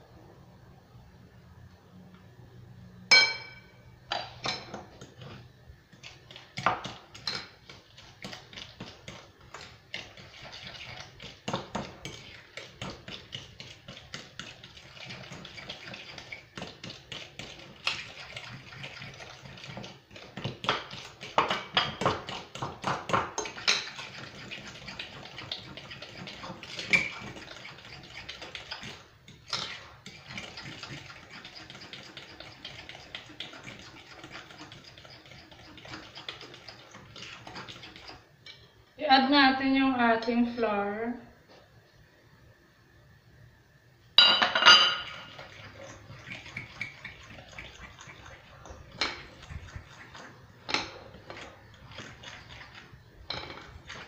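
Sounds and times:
fork clinking and scraping glass bowl: 25.8s - 28.2s, 53.2s - 54.0s.

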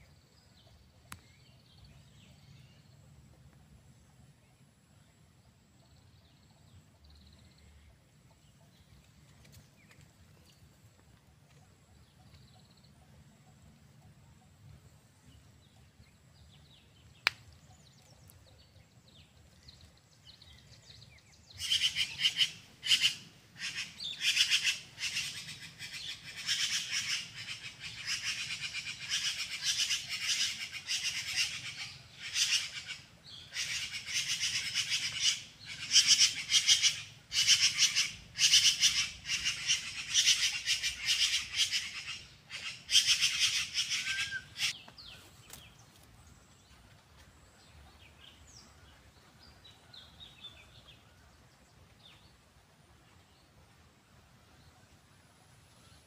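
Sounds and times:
bird chattering calls: 21.6s - 44.9s.

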